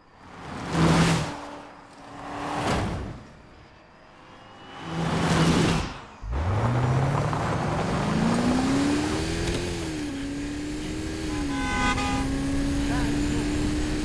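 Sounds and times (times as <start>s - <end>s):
car rushing past: 0.2s - 10.7s
car engine revving hard: 6.2s - 14.0s.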